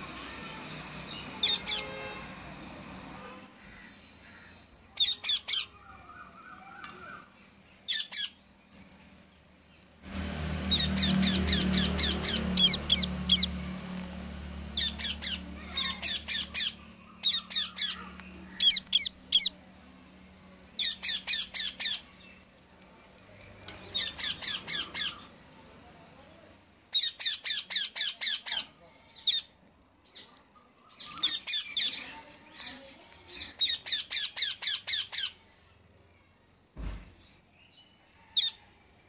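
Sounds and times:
parakeet squawking: 1.4 - 2.0, 10.7 - 13.6, 14.7 - 19.6, 20.8 - 22.1, 24.0 - 25.3, 26.9 - 29.5.

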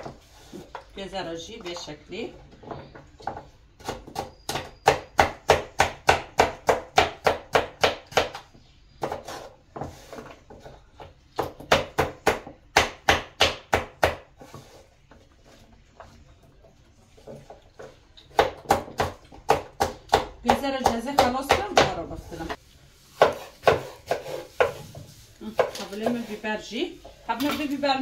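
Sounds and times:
knife chopping on wooden board: 2.6 - 14.8, 17.8 - 26.3.

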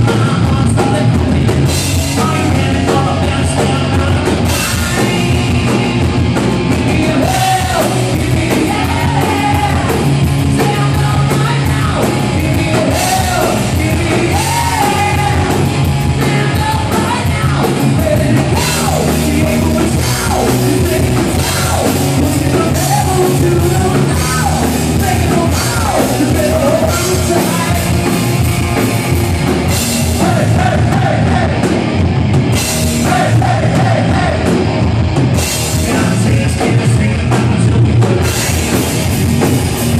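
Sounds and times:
person singing: 0.0 - 6.1, 6.7 - 28.1
bass guitar: 0.0 - 39.9
drum kit: 0.0 - 39.9
electric guitars: 0.0 - 39.9.

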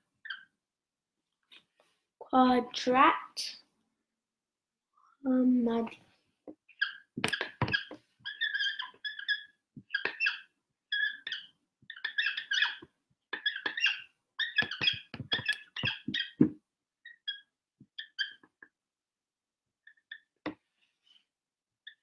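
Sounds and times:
marker squeaking on whiteboard: 0.2 - 0.6, 6.7 - 18.8, 19.8 - 22.0.

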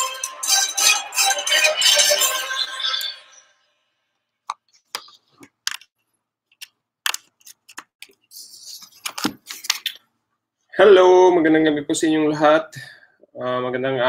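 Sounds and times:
background music: 0.0 - 3.4
mouse and keyboard clicks: 6.5 - 8.2.

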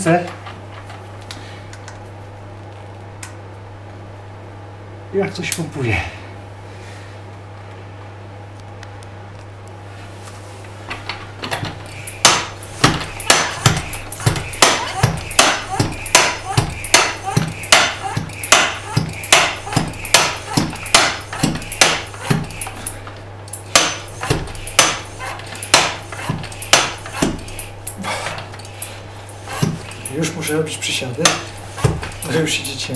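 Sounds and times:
hand pump clacking: 11.5 - 30.6, 31.2 - 32.9.

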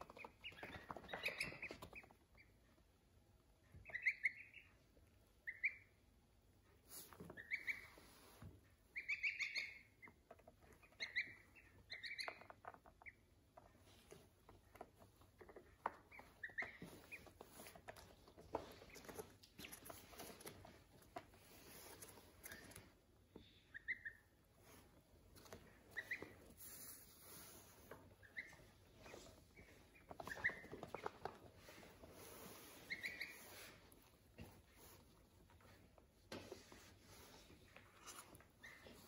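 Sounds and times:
chicks peeping: 0.0 - 6.1, 6.7 - 35.2
soft taps and pattering: 12.2 - 23.5, 27.8 - 32.0.

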